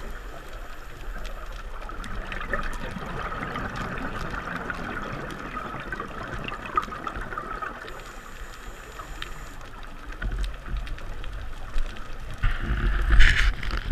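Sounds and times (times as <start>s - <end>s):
faint clicks: 0.0s - 13.9s
low rumble of water movement: 0.0s - 13.9s
underwater hiss: 7.8s - 9.6s.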